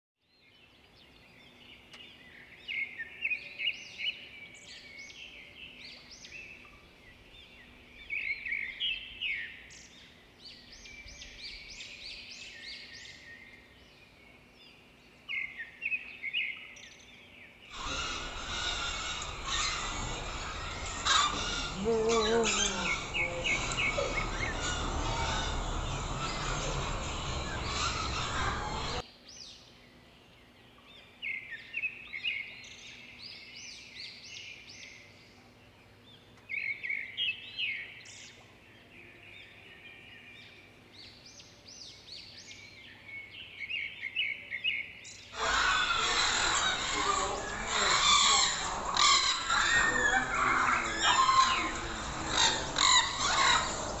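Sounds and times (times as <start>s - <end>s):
caged birds chirping: 17.7s - 29.0s, 42.2s - 54.0s.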